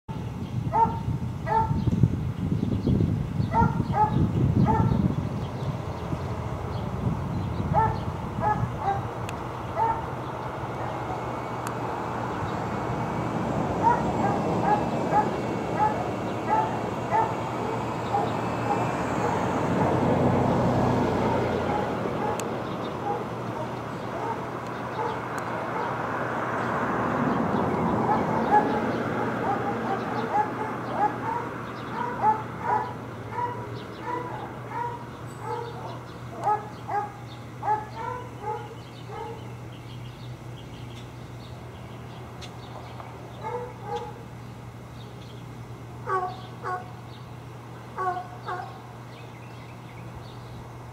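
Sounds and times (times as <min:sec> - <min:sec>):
dogs barking: 0:00.7 - 0:01.8, 0:03.5 - 0:05.0, 0:07.7 - 0:11.3, 0:13.7 - 0:26.1, 0:27.7 - 0:39.5, 0:43.3 - 0:44.3, 0:46.0 - 0:47.0, 0:48.0 - 0:49.0.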